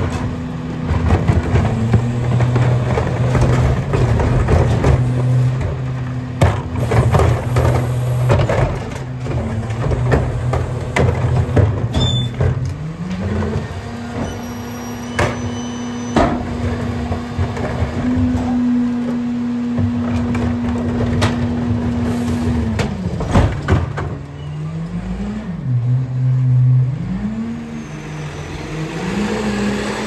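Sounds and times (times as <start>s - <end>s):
garbage truck humming: 0.0s - 30.0s.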